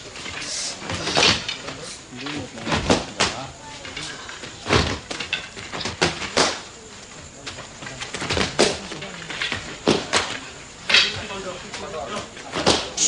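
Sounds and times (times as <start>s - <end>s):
sticks clacking together: 9.3s - 11.2s.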